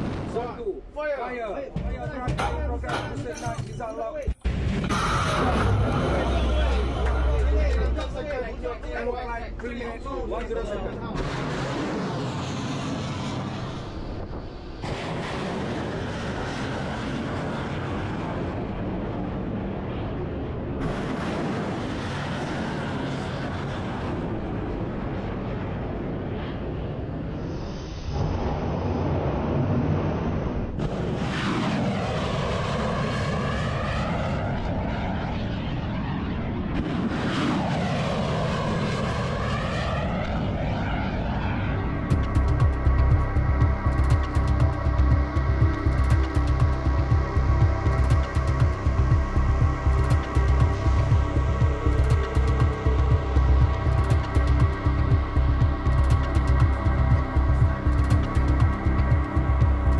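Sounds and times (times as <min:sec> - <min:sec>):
rocket motors roaring: 0:04.4 - 0:59.9.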